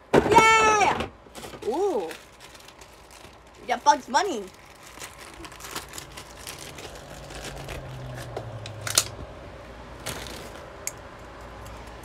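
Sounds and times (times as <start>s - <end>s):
packaging rustling: 1.3s - 9.0s, 10.0s - 10.8s.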